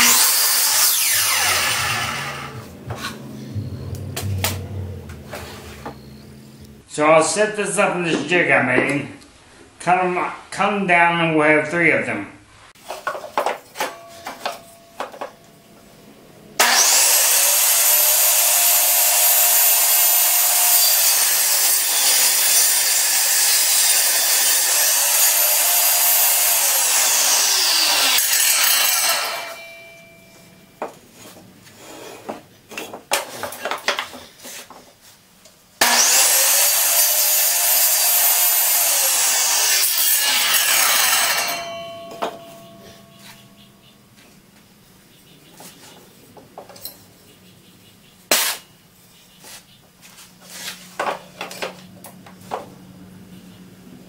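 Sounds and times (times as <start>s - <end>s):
miter saw cutting wood: 0.0s - 6.4s, 16.6s - 29.7s, 35.8s - 42.0s.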